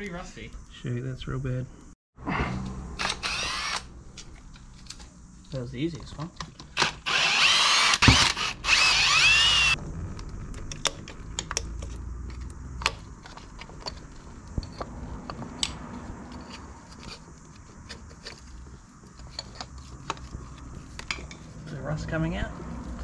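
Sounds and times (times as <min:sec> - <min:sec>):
cordless drill spinning: 0:03.0 - 0:03.9, 0:06.8 - 0:09.8.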